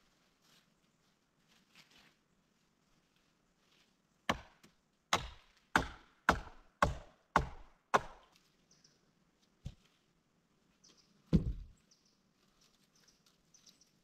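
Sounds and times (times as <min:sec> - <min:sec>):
wood being chopped: 0:04.3 - 0:08.3, 0:11.3 - 0:11.7.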